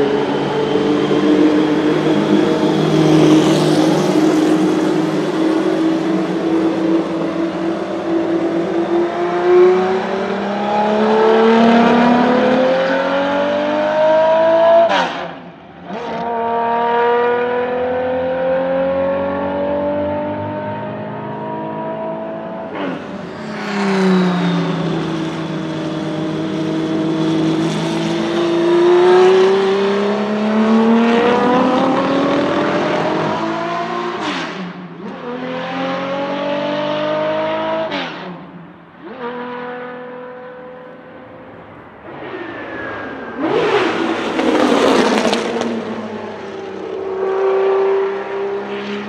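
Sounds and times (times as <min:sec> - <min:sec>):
racing engine accelerating with upshifts: 0:00.0 - 0:49.0.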